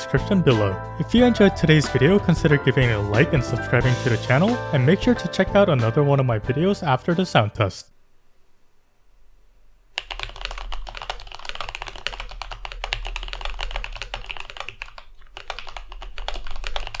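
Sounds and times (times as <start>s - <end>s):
mechanical keyboard typing: 10.0s - 17.0s.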